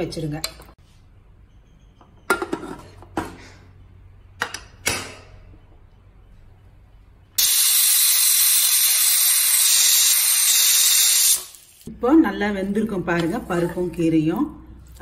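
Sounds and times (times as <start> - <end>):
pressure cooker whistle hissing: 7.4 - 11.6.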